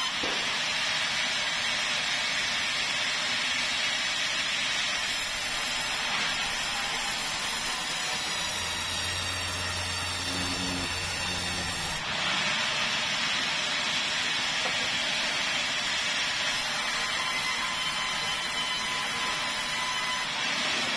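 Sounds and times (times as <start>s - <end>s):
band saw cutting wood: 0.0s - 20.9s.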